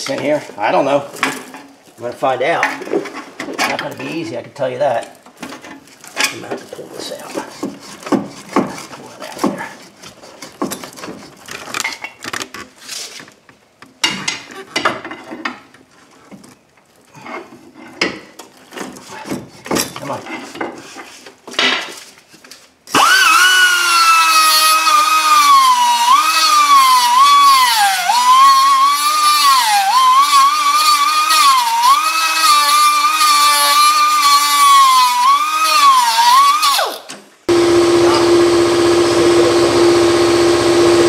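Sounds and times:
low hum: 37.5 - 41.0.

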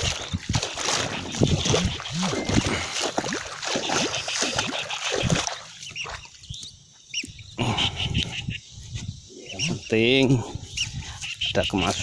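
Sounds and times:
low animal calls: 0.0 - 6.3, 7.2 - 8.7
splashing in shallow water: 0.0 - 8.0.

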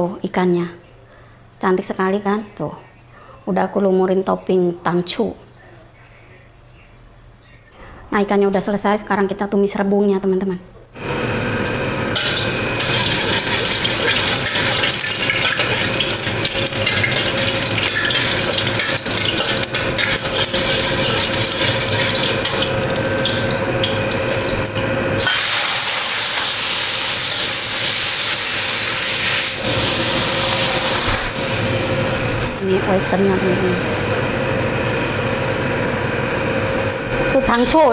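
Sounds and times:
garlic sizzling in hot oil: 11.0 - 37.9.

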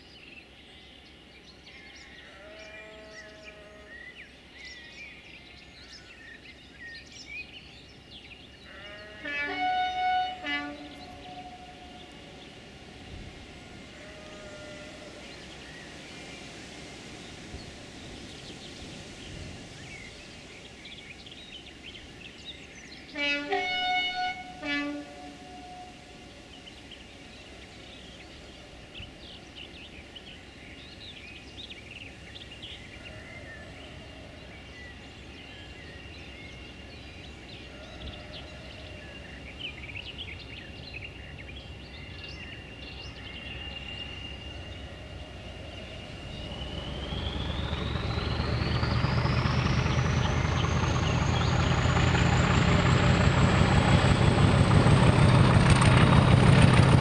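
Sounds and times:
birds chirping: 0.0 - 57.0
diesel locomotive engine: 3.9 - 57.0
turbocharger whistle: 46.3 - 57.0.

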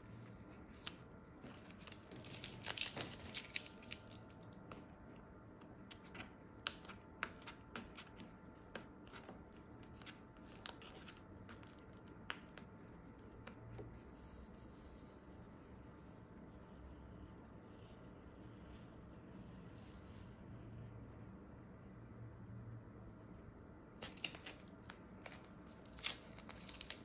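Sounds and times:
masking tape peeling off paper: 0.7 - 4.7, 24.0 - 27.0.

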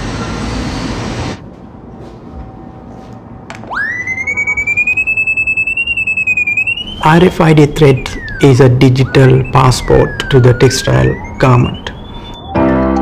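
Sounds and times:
street traffic: 0.0 - 12.7
pulsing electronic beep: 3.8 - 12.7.

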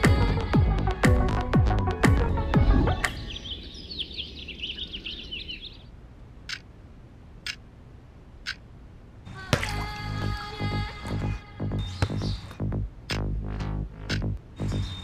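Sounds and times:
small birds chirping: 2.2 - 6.7, 11.1 - 13.2, 14.0 - 15.0.

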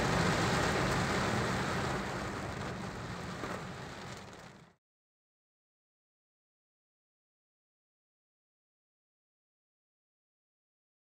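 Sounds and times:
heavy rain on car windscreen: 0.0 - 4.8
road and engine noise: 0.0 - 4.8.

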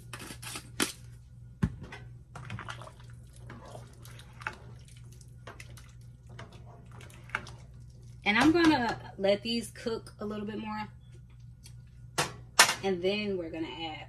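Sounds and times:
broth sloshing: 2.3 - 8.9.

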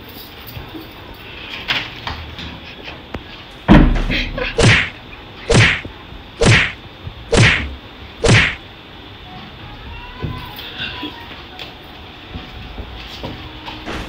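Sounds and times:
heavy thump behind a door: 3.7 - 4.9
sharp whacks of a beating: 4.6 - 8.6.

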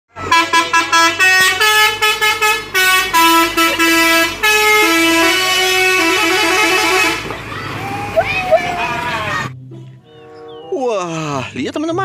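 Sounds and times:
musical vehicle horn tune: 0.2 - 7.3, 9.7 - 10.7.

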